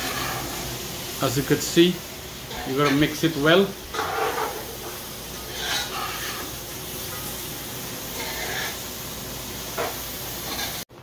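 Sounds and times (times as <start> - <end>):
spoon scraping a pan: 0.0 - 0.7, 2.5 - 3.1, 3.9 - 7.4, 8.1 - 8.9, 9.8 - 10.9
food sizzling in a pan: 0.0 - 11.0.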